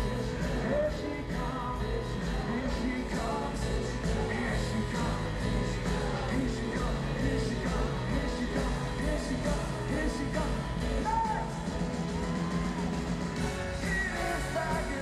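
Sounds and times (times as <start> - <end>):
man singing: 0.0 - 11.7, 13.4 - 15.0
rock band playing live: 0.0 - 15.0.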